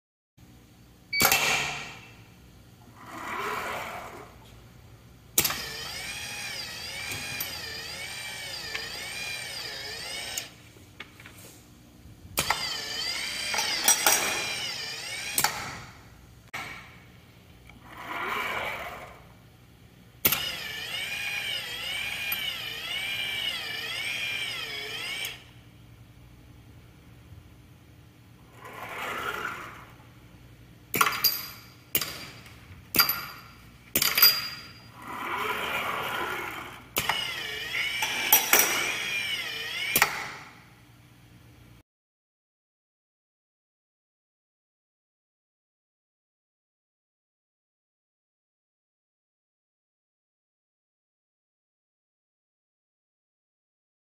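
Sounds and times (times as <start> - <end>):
motor whine wavering pitch: 5.4 - 10.6, 12.4 - 16.0, 20.3 - 25.6, 35.8 - 40.4
pneumatic cylinders clicking and knocking: 5.4 - 10.6, 12.4 - 16.0, 20.2 - 25.5, 30.9 - 34.8, 36.9 - 40.6.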